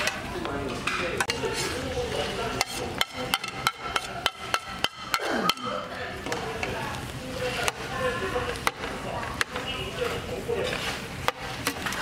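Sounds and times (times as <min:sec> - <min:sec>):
spatula stirring food on griddle: 0:00.0 - 0:12.0
spatula clinking on metal pan: 0:02.5 - 0:05.7.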